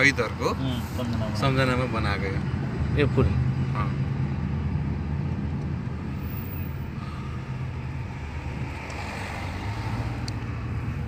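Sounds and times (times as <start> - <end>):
car engine rumble: 0.0 - 11.0
tyres on road: 0.0 - 11.0.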